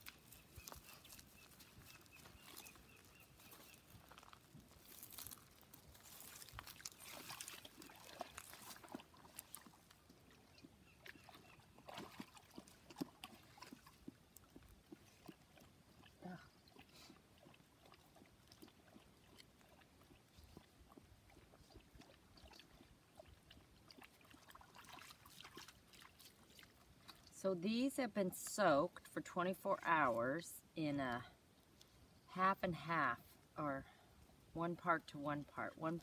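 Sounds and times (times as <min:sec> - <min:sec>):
wet squelches: 0:00.0 - 0:27.4
small splashes: 0:04.8 - 0:27.3.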